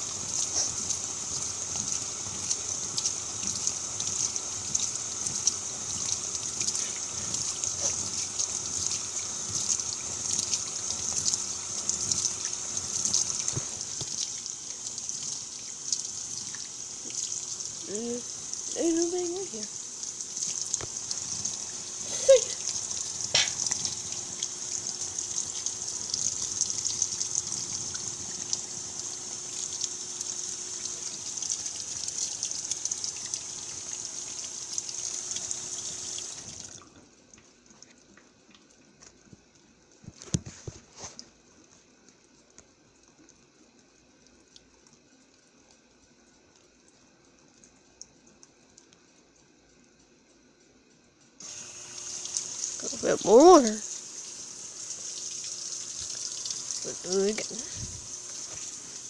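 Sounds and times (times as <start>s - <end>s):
water hissing into washing machine: 0.0s - 37.2s, 51.4s - 59.0s.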